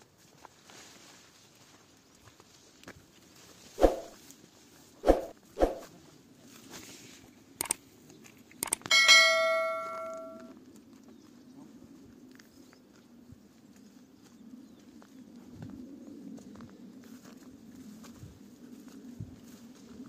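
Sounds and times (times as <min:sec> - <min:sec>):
sharp clicks: 0:07.6 - 0:07.8, 0:08.6 - 0:09.0
bell ringing: 0:08.9 - 0:10.5.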